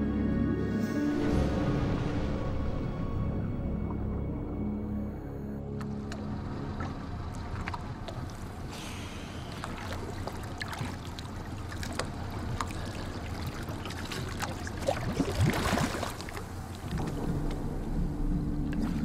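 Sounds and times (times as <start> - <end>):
water sloshing and splashing: 5.6 - 19.0
small drips and clicks: 5.7 - 8.7, 9.5 - 17.6
splashing and bubbling underwater: 5.8 - 19.0.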